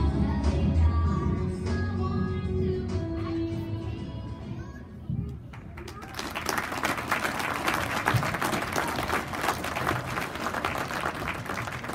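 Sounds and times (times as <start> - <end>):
audience applauding: 5.8 - 11.9.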